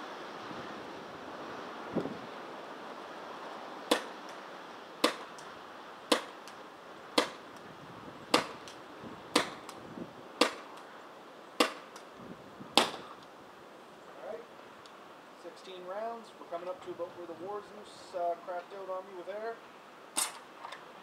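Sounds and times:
paintball pistol shots: 3.9 - 4.2, 5.0 - 5.3, 6.1 - 6.4, 7.2 - 7.4, 8.3 - 9.8, 10.4 - 10.7, 11.6 - 12.0, 12.8 - 13.1.

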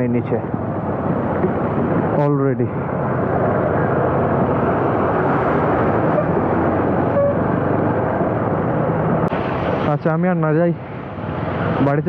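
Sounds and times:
wind rushing: 0.3 - 12.0
motorcycle engine: 0.6 - 9.9.

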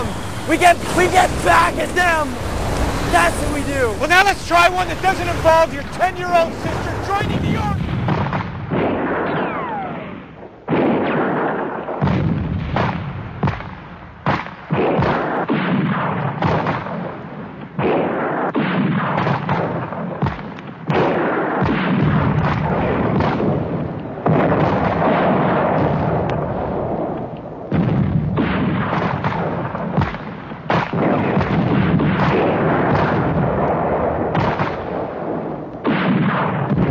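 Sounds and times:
rumbling explosions: 0.0 - 13.4, 30.9 - 36.9.

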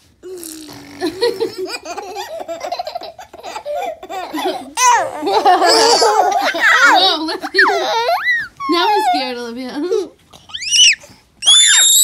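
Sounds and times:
baby laughing: 1.1 - 9.3.

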